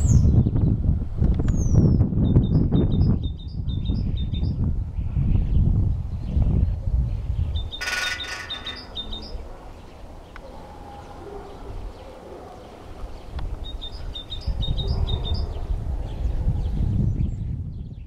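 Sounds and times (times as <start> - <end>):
bird high chirps: 7.6 - 9.4
woodpecker drumming on pole: 7.7 - 9.4.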